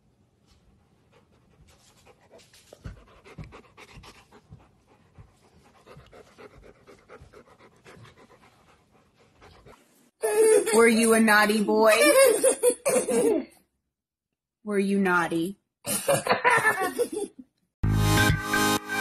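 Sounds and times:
dog panting softly: 0.4 - 10.1.

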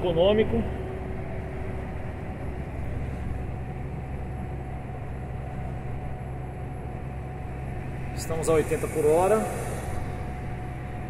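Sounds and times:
diesel truck engine droning: 0.0 - 11.0
road noise: 0.0 - 11.0.

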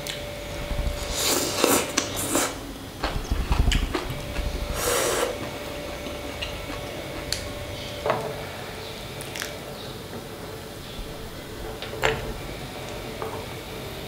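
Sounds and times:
person slurping soup: 1.0 - 2.7, 4.7 - 5.4
person chewing: 1.0 - 7.9.

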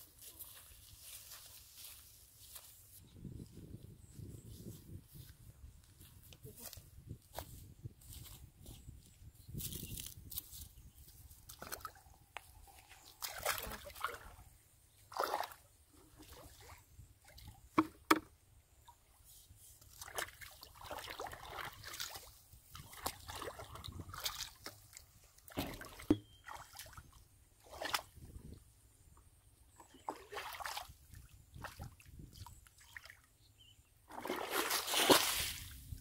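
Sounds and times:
muddy water sloshing: 11.2 - 19.2, 19.8 - 28.4, 29.7 - 33.3, 34.1 - 36.0.

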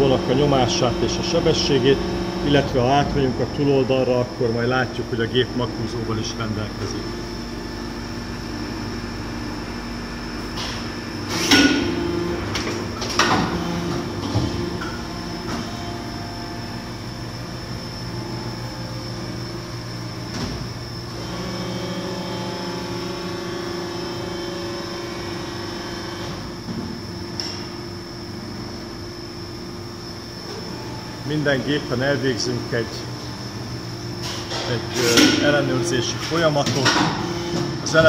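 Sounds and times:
machine mechanical hum: 0.0 - 38.0
loud machine clanks and knocks: 34.3 - 38.0.

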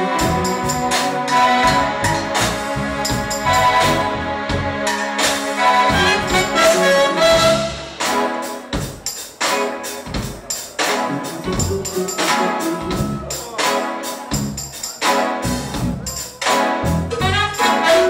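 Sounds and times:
jazz fusion band playing: 0.0 - 18.0
sharp drum accents: 10.1 - 13.8.

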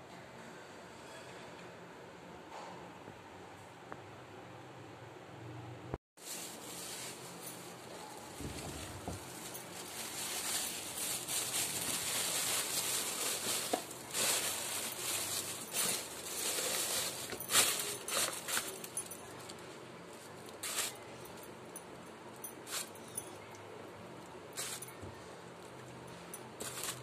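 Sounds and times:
plastic bag rustling: 6.2 - 21.2, 24.6 - 25.7, 26.6 - 27.0.

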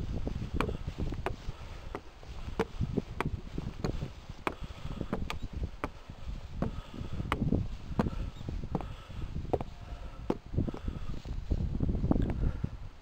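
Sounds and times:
wind on microphone: 0.0 - 13.0
footsteps on wooden stairs: 0.1 - 9.7.

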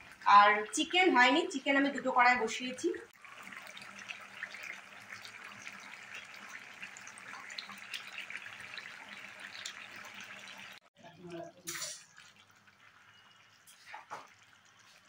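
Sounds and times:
curry sizzling and bubbling: 0.0 - 15.0.

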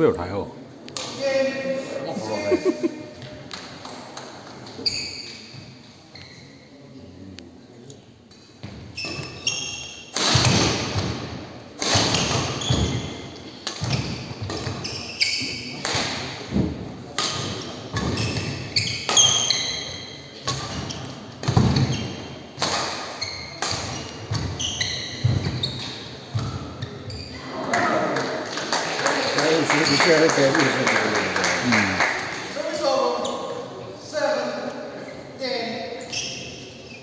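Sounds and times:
shoes squeaking on wooden court: 3.1 - 6.9, 8.3 - 11.2, 11.8 - 16.6, 17.2 - 27.8, 35.0 - 37.0
rackets hitting shuttlecock: 10.1 - 11.2, 11.8 - 13.0, 17.1 - 19.8, 20.4 - 21.9, 22.6 - 24.6.

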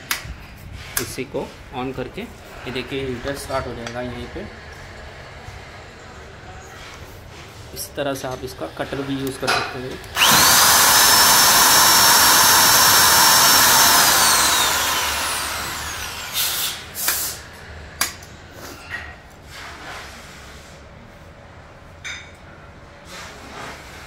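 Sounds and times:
electric motor whining: 10.1 - 17.0.

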